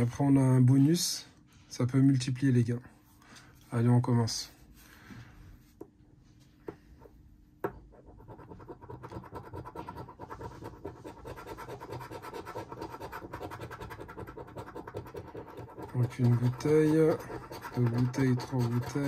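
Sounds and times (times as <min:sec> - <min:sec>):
coin scraping scratch card: 0:08.0 - 0:19.0.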